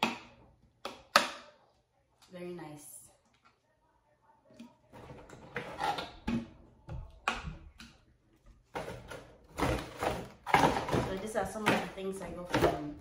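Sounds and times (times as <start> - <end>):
plastic lids clattering: 8.7 - 13.0.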